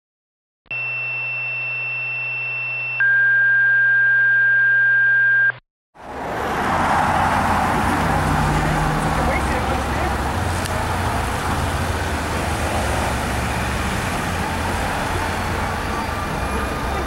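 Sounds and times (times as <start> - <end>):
two-tone radio paging tones: 0.7 - 5.6
street traffic noise: 6.0 - 17.0.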